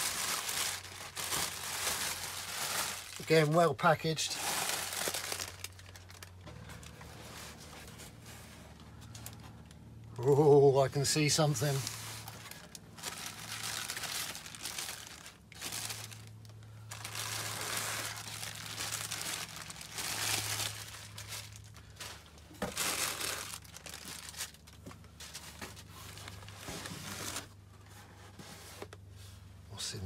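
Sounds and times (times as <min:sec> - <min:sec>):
plastic packing crinkling: 0:00.0 - 0:07.0, 0:11.2 - 0:27.6
low steady hum: 0:00.0 - 0:30.0.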